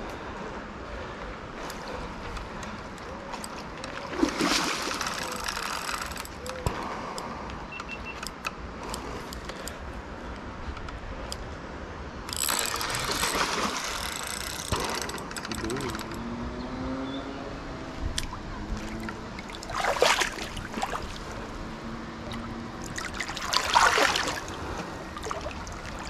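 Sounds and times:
fishing reel clicking and ratcheting: 5.0 - 6.6, 12.3 - 13.3, 13.9 - 16.2.

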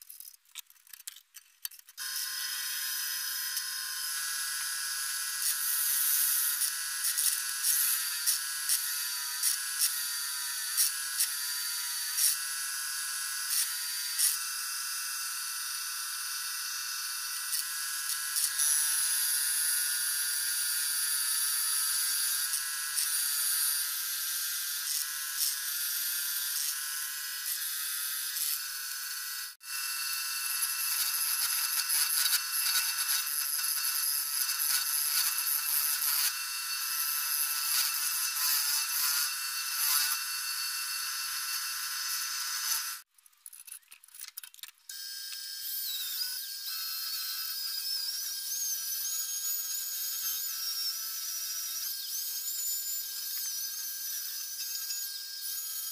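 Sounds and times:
turning tool cutting wood: 0.0 - 43.8, 44.5 - 55.9
drill bit boring into wood: 2.0 - 43.1, 44.9 - 55.9
wood lathe whine: 2.0 - 43.1.

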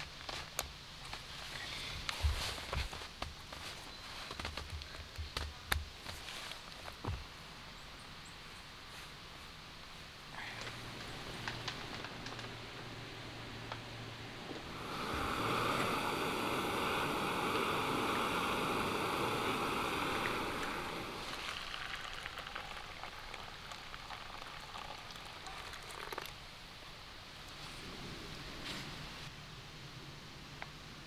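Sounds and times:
crackling rustles: 0.0 - 7.4, 8.8 - 14.7, 27.3 - 29.3
rushing water: 13.9 - 27.2.

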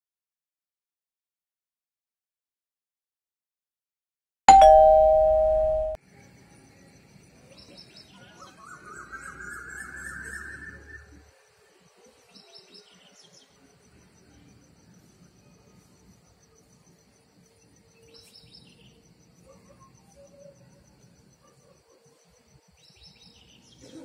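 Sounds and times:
two-tone ding-dong chime: 4.5 - 6.0.

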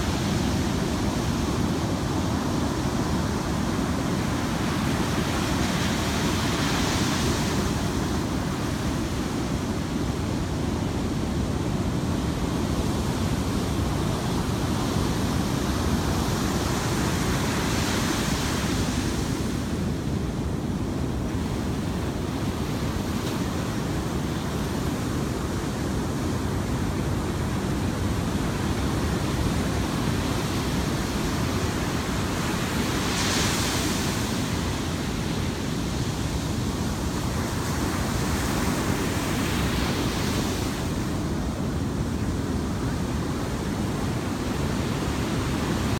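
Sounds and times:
ocean surf breaking: 21.1 - 45.9.

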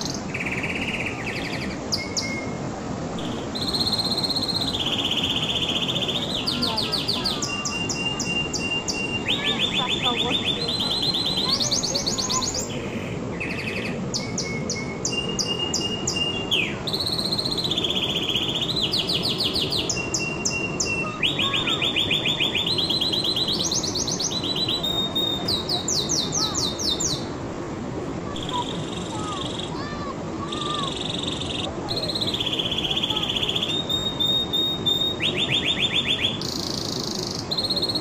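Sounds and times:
canary singing trills: 0.0 - 2.6, 3.2 - 27.3, 30.4 - 38.0
low background noise: 0.0 - 38.0.

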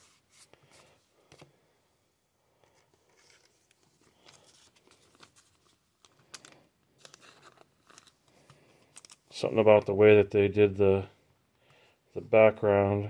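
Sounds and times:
card sleeve rustling: 2.7 - 9.3.

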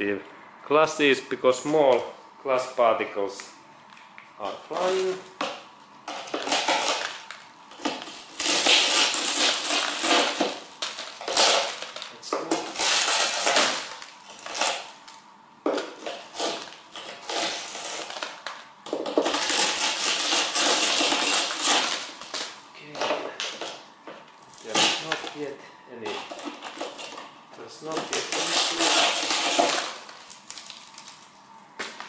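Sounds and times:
glass crunching and clinking: 6.1 - 14.8, 28.0 - 31.3.

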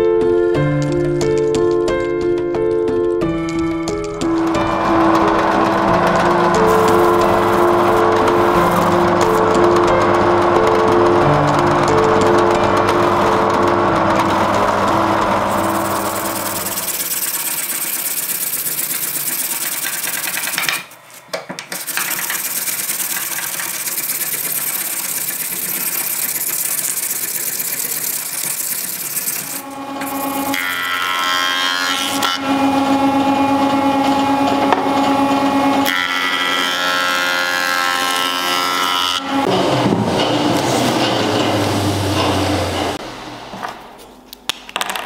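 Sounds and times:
jointer humming: 0.0 - 20.9, 21.8 - 44.0
orbital sander on metal: 4.6 - 20.7, 21.8 - 31.2.

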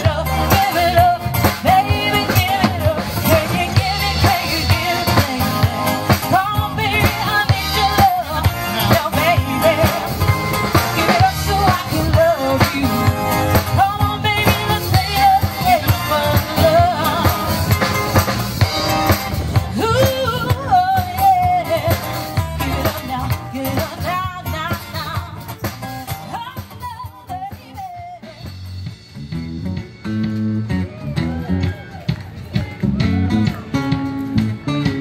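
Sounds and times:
person singing: 0.0 - 17.9
live band playing: 0.0 - 35.0.

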